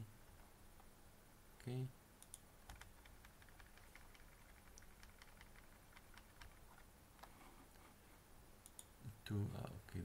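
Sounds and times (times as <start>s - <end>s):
mouse and keyboard clicks: 2.2s - 7.4s.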